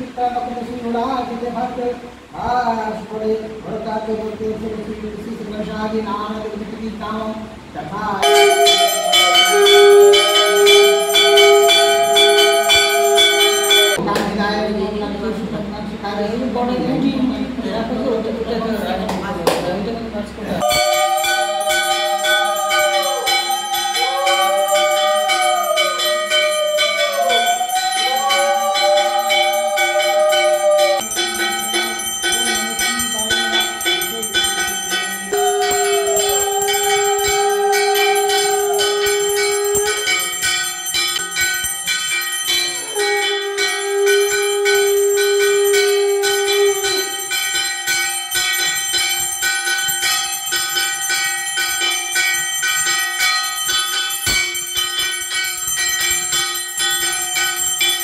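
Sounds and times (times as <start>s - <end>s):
brass hand bell ringing: 8.2s - 14.0s, 20.6s - 58.0s
long held notes: 8.2s - 14.0s, 20.6s - 51.2s
long sliding tones: 8.2s - 14.0s, 20.6s - 48.0s.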